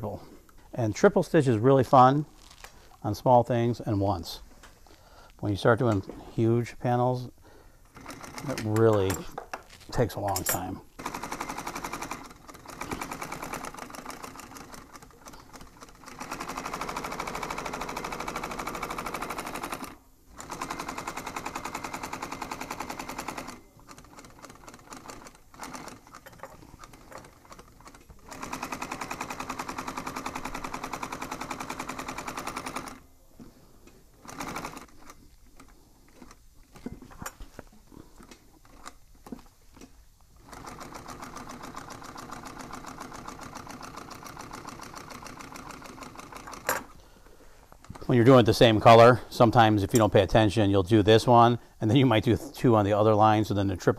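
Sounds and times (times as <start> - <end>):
industrial sewing machine stitching: 7.9 - 9.0, 10.6 - 33.0, 34.2 - 36.4, 40.4 - 46.9.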